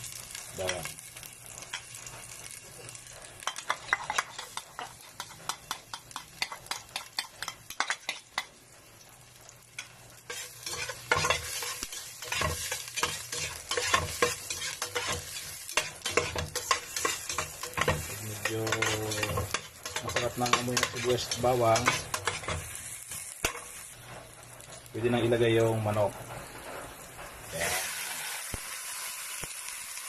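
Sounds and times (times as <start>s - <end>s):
onions sizzling in hot oil: 0.0s - 30.0s
utensil scraping a pot: 10.2s - 23.8s.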